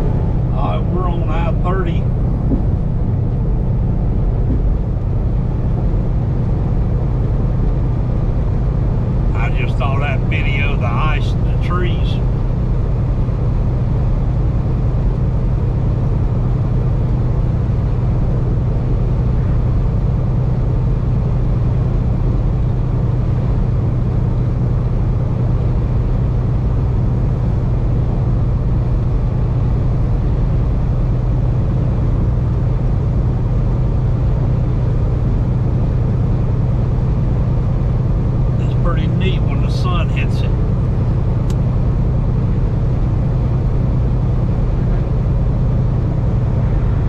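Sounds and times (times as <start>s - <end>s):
tyre and road noise: 0.0s - 12.8s
truck engine hum: 0.0s - 47.0s.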